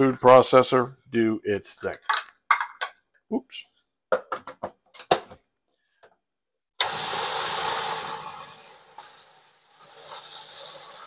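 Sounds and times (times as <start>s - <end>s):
food processor motor churning: 6.8s - 11.0s.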